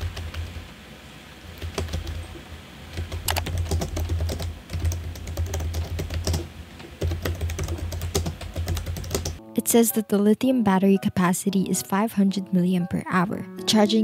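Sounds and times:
keyboard key clicks: 0:03.2 - 0:04.0.

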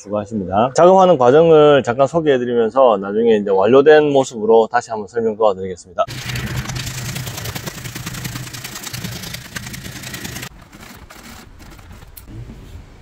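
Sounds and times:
machine clattering: 0:06.1 - 0:12.3.

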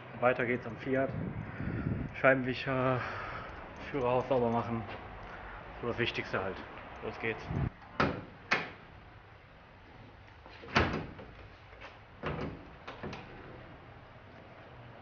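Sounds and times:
van door shutting: 0:10.6 - 0:11.4.

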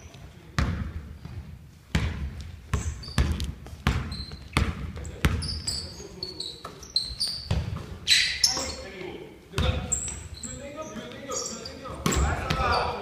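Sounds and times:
sneakers squeaking on floor: 0:00.0 - 0:13.0
basketball bouncing on hardwood floor: 0:00.6 - 0:05.6, 0:07.3 - 0:08.0.

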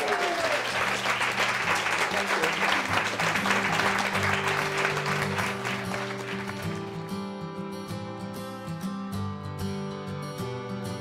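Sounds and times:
audience applauding: 0:00.0 - 0:07.2
guitar music: 0:00.8 - 0:11.0.

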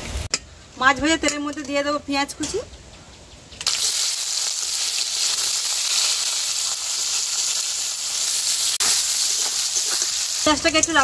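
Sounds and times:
onions sizzling in oil: 0:03.6 - 0:11.0.

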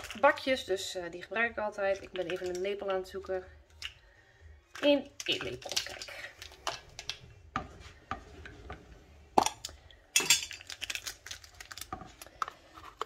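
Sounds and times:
kitchen utensils clinking: 0:09.4 - 0:11.4.

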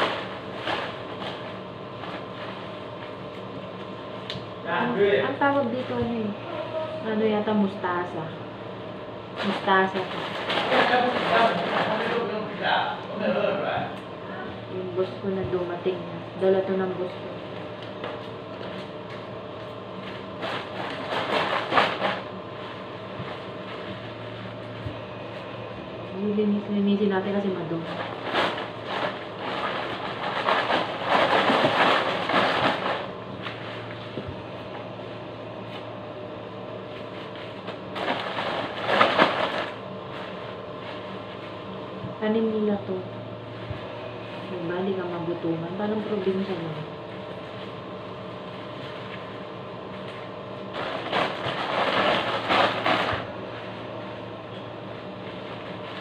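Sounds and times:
steady low hum: 0:00.0 - 0:56.0
leafy greens and plastic rustling: 0:09.4 - 0:12.8, 0:27.2 - 0:34.7, 0:36.8 - 0:41.6, 0:43.8 - 0:56.0
plastic bag crinkling: 0:27.8 - 0:33.1, 0:37.8 - 0:41.4, 0:50.7 - 0:53.3.

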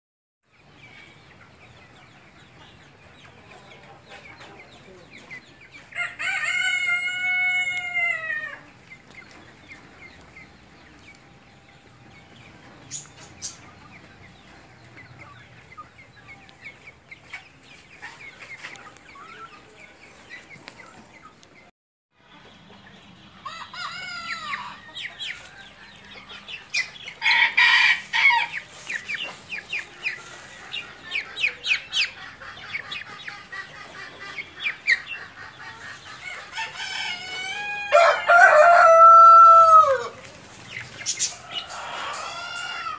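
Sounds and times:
chickens clucking and peeping: 0:00.5 - 0:42.9
rooster crowing: 0:06.0 - 0:08.6, 0:27.2 - 0:28.6, 0:36.4 - 0:40.2.

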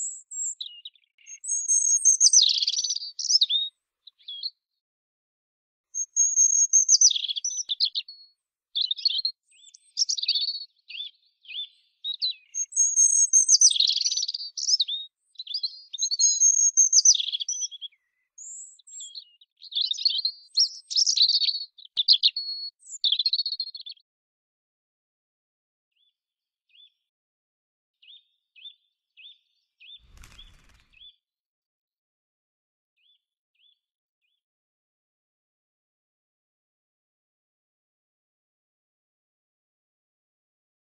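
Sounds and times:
robin singing: 0:00.0 - 0:04.6, 0:06.0 - 0:24.0.

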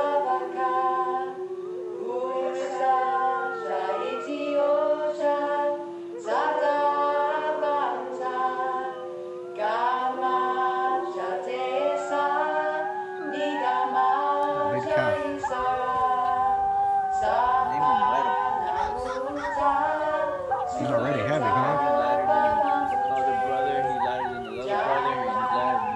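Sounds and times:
a cappella choir singing: 0:00.0 - 0:25.9.

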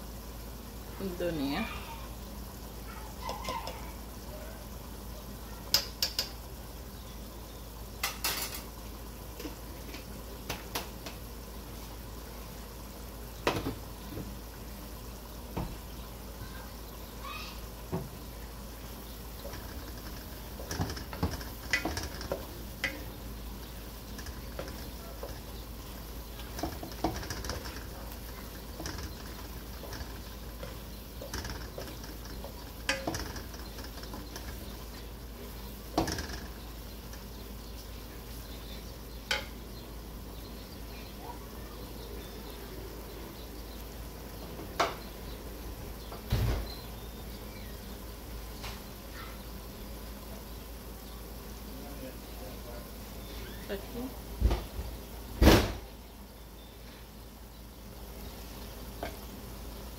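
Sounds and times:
frying sizzle: 0:00.0 - 0:59.9
spatula knocking on a metal pot: 0:19.4 - 0:23.1, 0:28.8 - 0:34.7.

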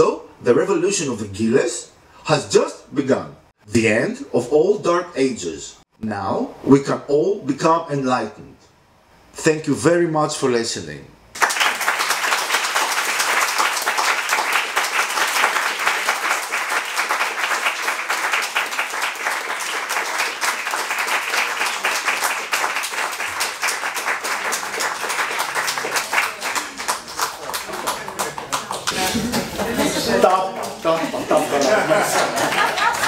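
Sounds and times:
audience applauding: 0:11.4 - 0:33.0.

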